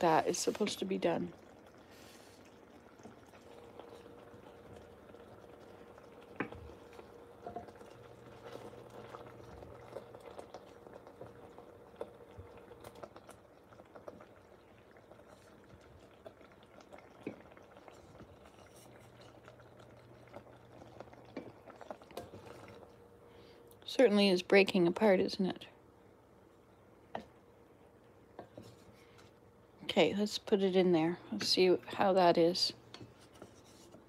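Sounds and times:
butter bubbling and crackling: 0.0s - 34.0s
wooden spatula scraping dish: 33.0s - 34.0s.

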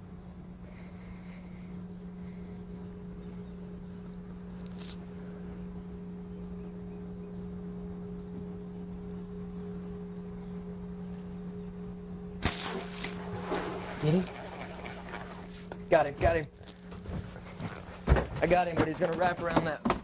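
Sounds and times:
steady low hum: 0.0s - 20.0s
sharp crack of bow shot: 12.4s - 13.7s
water splashing: 12.4s - 15.7s.

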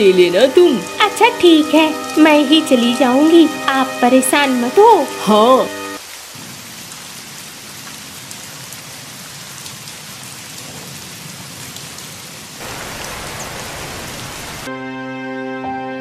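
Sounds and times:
soft background music: 0.0s - 6.0s
steady rain: 0.0s - 14.7s.

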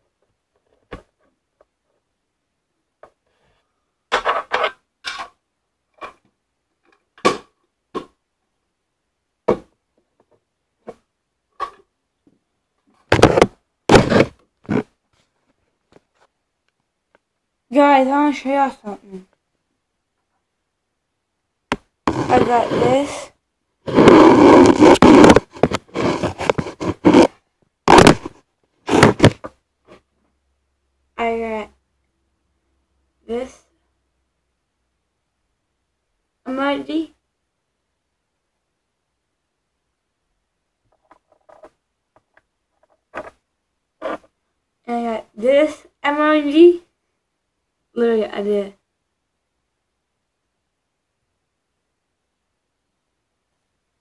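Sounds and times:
microphone handling scraping: 13.1s - 14.9s, 22.1s - 23.2s, 23.8s - 29.5s.

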